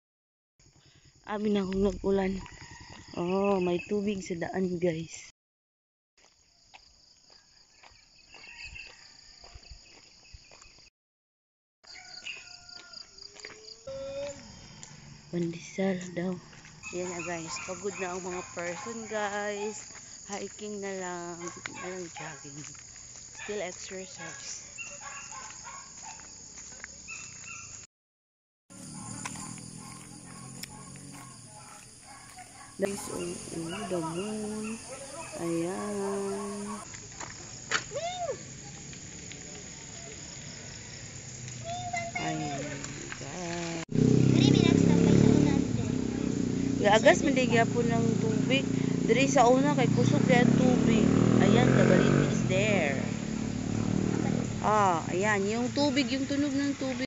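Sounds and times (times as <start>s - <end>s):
insects chirring: 11.8s - 27.8s, 28.7s - 57.0s
footsteps: 12.3s - 27.9s, 28.8s - 38.0s.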